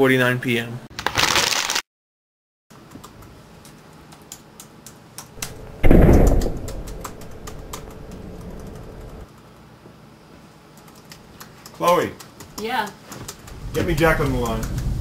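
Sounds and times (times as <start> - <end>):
typing on laptop keyboard: 2.8 - 5.6, 6.2 - 9.7, 10.7 - 15.0
loud low boom: 5.4 - 7.6
faint low hum: 5.4 - 9.2.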